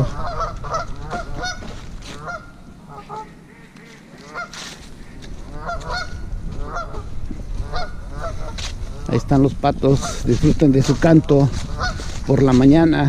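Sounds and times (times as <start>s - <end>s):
geese honking on water: 0.0s - 9.2s, 11.5s - 12.2s.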